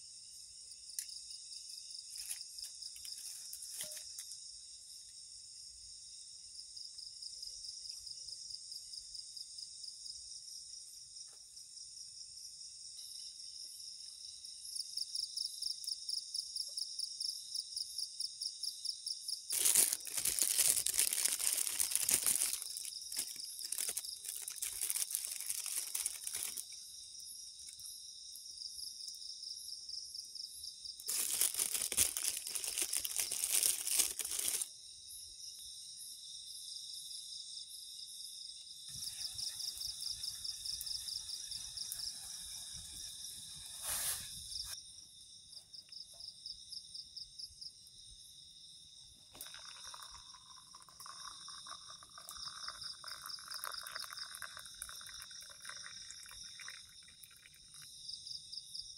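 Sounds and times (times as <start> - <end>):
night insects trilling: 0.0 - 58.9
crunching dry leaves: 19.5 - 26.8, 31.1 - 34.7
liquid poured into a cup: 19.5 - 26.8, 49.3 - 58.2.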